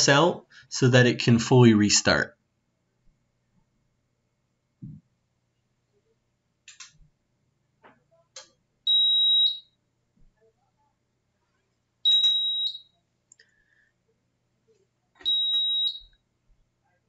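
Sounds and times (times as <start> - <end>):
high-pitched electronic beeps: 12.1 - 12.8
faint clicks: 13.3 - 13.5.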